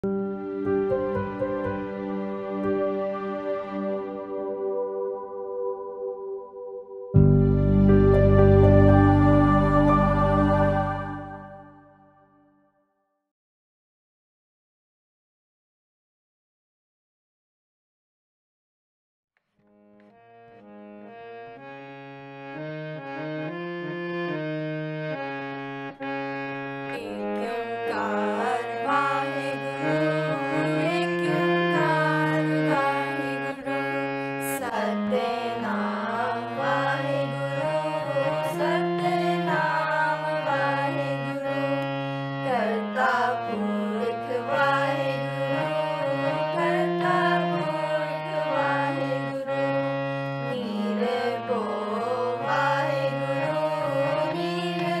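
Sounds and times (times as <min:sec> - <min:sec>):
person singing a hymn: 0:00.0 - 0:12.2, 0:26.9 - 0:55.0
harmonium playing: 0:00.0 - 0:12.4, 0:19.7 - 0:55.0.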